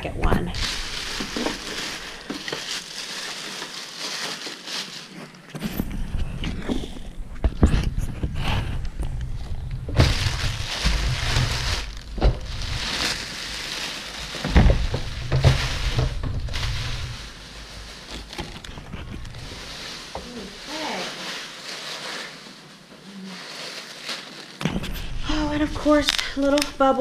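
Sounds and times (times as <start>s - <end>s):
plastic bag crinkling: 0.0s - 27.0s
dull thumps: 9.5s - 17.3s.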